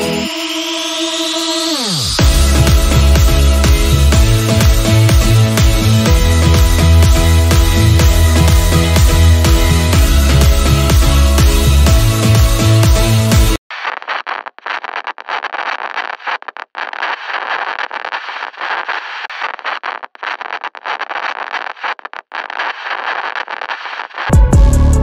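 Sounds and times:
electronic music: 0:00.0 - 0:13.6, 0:24.3 - 0:25.0
rough static-like hiss: 0:13.7 - 0:24.3.

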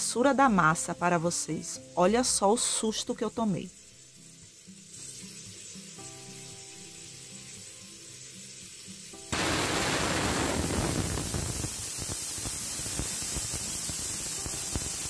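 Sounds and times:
steam hissing from valve: 0:03.6 - 0:15.0
crackling sputter: 0:09.3 - 0:15.0.

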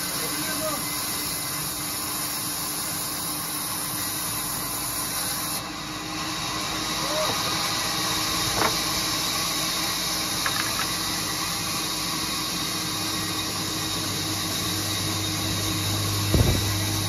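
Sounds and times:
sawmill machinery humming: 0:00.0 - 0:17.0
short thump: 0:16.3 - 0:16.8.

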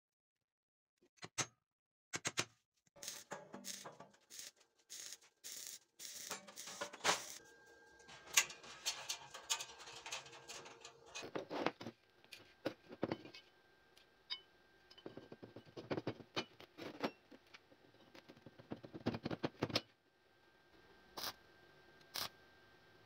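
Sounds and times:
steel pipes clinking: 0:03.0 - 0:04.6, 0:06.2 - 0:11.5.

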